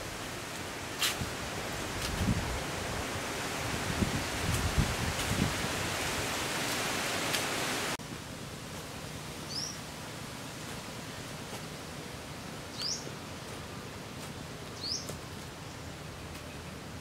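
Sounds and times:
steady outdoor hiss: 0:00.0 - 0:17.0
bird chirping: 0:09.5 - 0:09.8, 0:12.7 - 0:13.1, 0:14.8 - 0:16.8.

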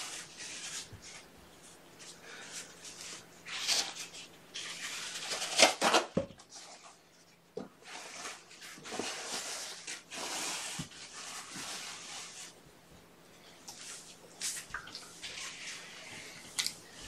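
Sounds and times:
paper towels rustling and crinkling: 0:00.0 - 0:07.0, 0:07.8 - 0:12.6.

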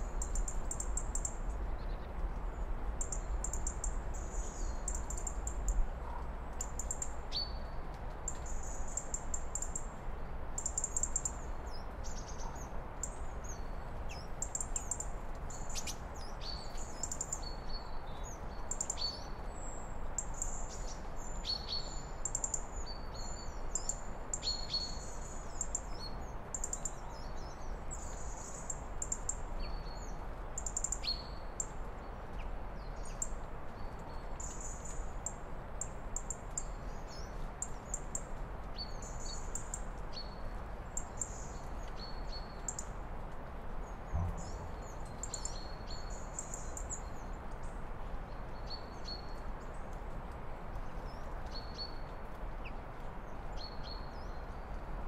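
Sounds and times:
low outdoor background noise: 0:00.0 - 0:55.0
small birds chirping: 0:00.0 - 0:55.0.

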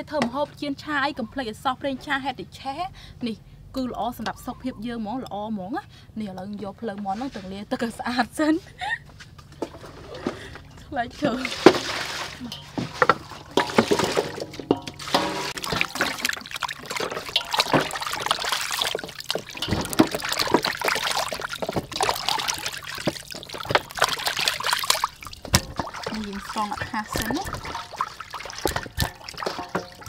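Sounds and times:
water splashing in a metal bowl: 0:10.2 - 0:30.0.

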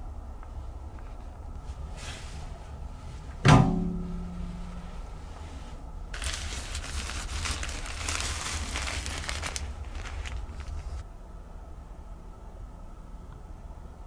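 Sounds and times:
plastic wrapping crinkling: 0:06.1 - 0:11.0.

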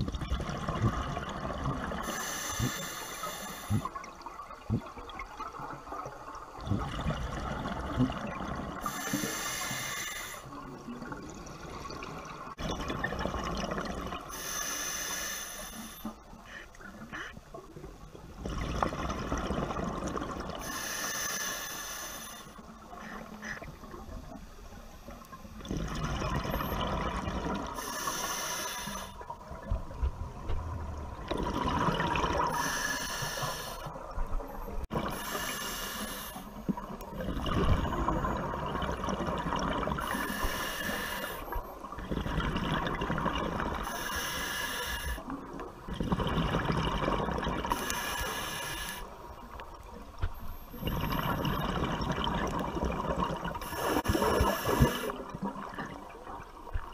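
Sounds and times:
exhaled bubbles rushing: 0:00.0 - 0:02.1, 0:03.7 - 0:08.9, 0:10.9 - 0:14.3, 0:18.4 - 0:20.6, 0:25.6 - 0:27.8, 0:29.3 - 0:32.7, 0:36.8 - 0:40.2, 0:41.9 - 0:43.9, 0:45.4 - 0:47.9, 0:50.7 - 0:56.9
regulator air hiss: 0:08.8 - 0:10.5, 0:14.3 - 0:16.1, 0:20.6 - 0:22.6, 0:27.8 - 0:29.2, 0:32.6 - 0:33.9, 0:35.1 - 0:36.6, 0:40.1 - 0:41.5, 0:43.9 - 0:45.2, 0:47.7 - 0:49.2.

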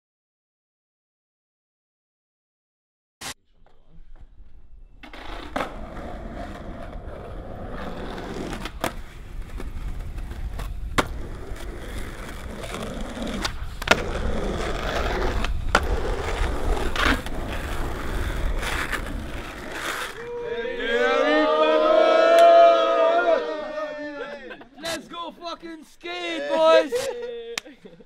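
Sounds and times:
skateboard wheels rolling on asphalt: 0:04.9 - 0:20.8
skateboard clacks: 0:07.9 - 0:20.2.

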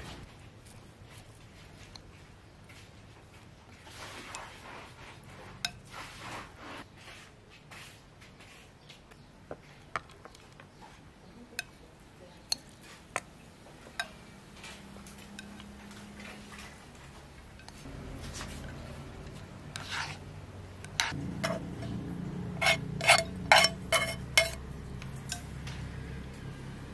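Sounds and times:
chopsticks rustling food in bowl: 0:00.2 - 0:08.7, 0:12.4 - 0:22.0, 0:22.6 - 0:25.5.

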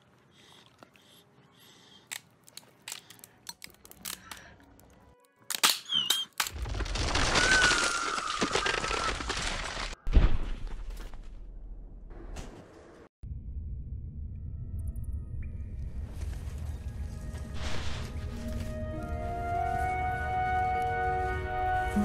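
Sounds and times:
sharp cracks and crackles: 0:05.5 - 0:10.0.

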